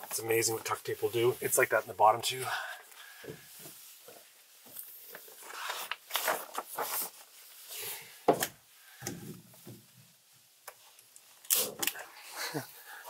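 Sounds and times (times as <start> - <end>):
plastic sheet crinkling: 3.6 - 7.8.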